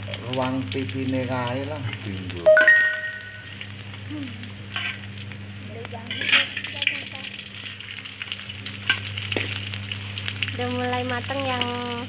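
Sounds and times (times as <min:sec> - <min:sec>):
fish sizzling in a wok: 0:00.0 - 0:12.0
steady low hum: 0:00.0 - 0:12.0
metal spatula scraping a pan: 0:04.8 - 0:05.0, 0:06.1 - 0:06.6.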